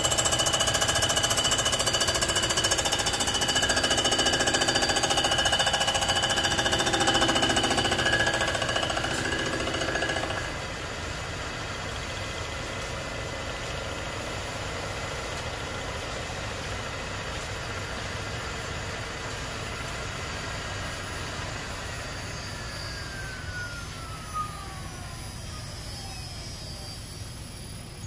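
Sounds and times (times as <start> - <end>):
surfacing machine whirring: 0.0 - 10.8, 19.8 - 28.0
whine falling in pitch: 21.3 - 28.0.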